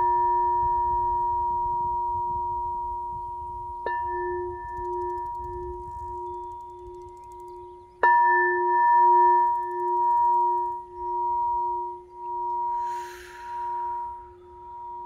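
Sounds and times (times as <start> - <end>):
crystal singing bowl ringing: 0.0 - 15.0.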